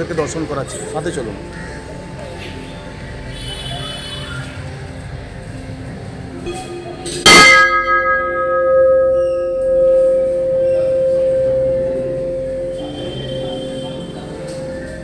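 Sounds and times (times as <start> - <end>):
large brass bell ringing: 7.2 - 15.0.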